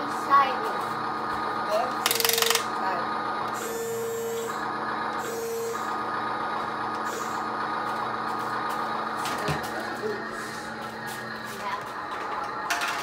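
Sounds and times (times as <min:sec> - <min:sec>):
toy truck electronic hum: 0:01.1 - 0:09.2.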